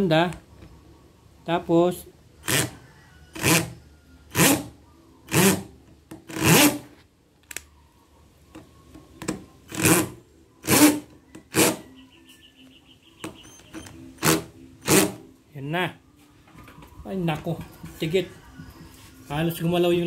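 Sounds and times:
cordless drill driving screw into wood: 5.3s - 6.8s, 14.2s - 15.2s.

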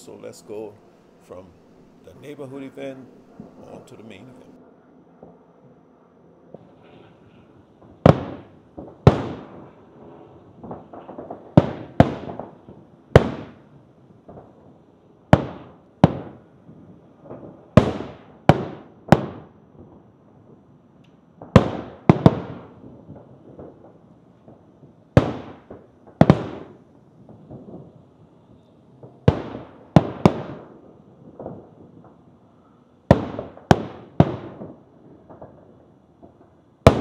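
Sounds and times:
firework shells booming: 0.0s - 4.6s, 6.5s - 20.0s, 21.4s - 37.0s.

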